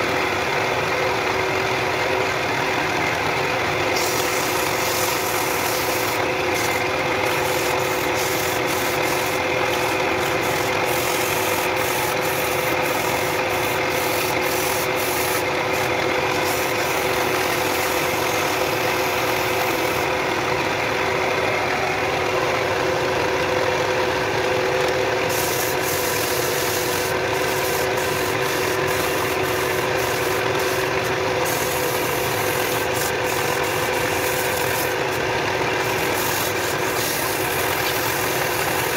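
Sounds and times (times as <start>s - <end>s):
wood lathe motor running: 0.0s - 38.9s
sandpaper rubbing spinning wood: 3.8s - 20.1s, 25.2s - 38.9s.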